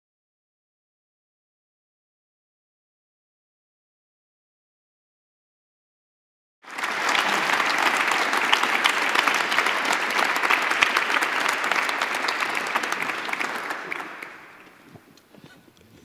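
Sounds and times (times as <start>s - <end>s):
audience applauding: 6.6s - 15.1s.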